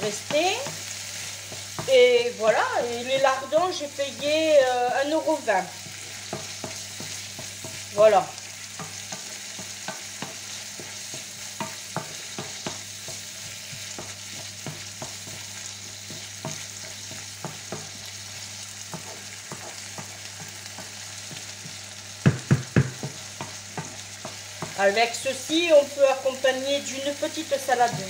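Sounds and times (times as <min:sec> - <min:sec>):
bacon and onion sizzling in a pan: 0:00.0 - 0:28.0
spatula knocking against pan: 0:05.8 - 0:07.9, 0:08.8 - 0:18.0, 0:18.9 - 0:24.8
spatula scraping and clicking on pan: 0:08.7 - 0:18.0, 0:18.8 - 0:21.8.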